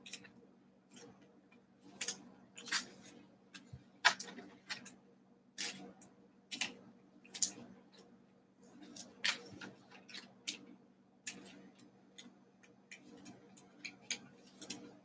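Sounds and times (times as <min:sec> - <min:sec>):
cards rustling and tapping: 0:02.0 - 0:05.0.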